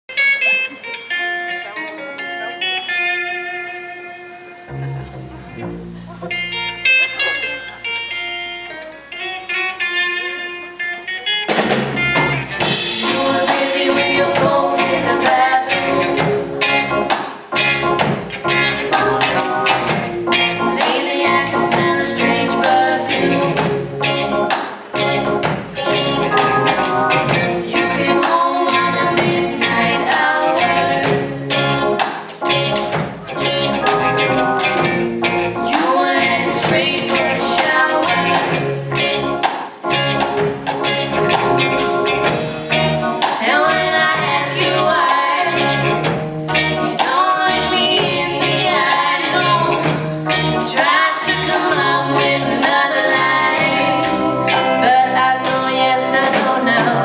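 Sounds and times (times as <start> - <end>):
bass guitar: 0.1 - 57.0
electric guitar: 0.1 - 57.0
drum kit beat: 11.5 - 57.0
synthesizer organ: 11.7 - 57.0
woman singing: 12.9 - 16.5, 20.6 - 23.8, 27.6 - 31.4, 35.6 - 38.7, 43.2 - 45.9, 46.8 - 57.0.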